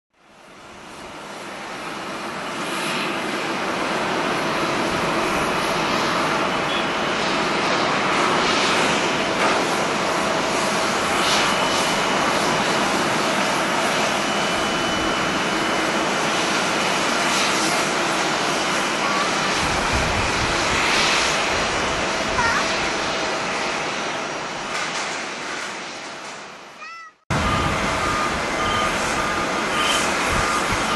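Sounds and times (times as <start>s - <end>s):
jet engine noise: 0.2s - 30.9s
wind rumbling on microphone: 19.5s - 23.6s, 27.3s - 30.9s.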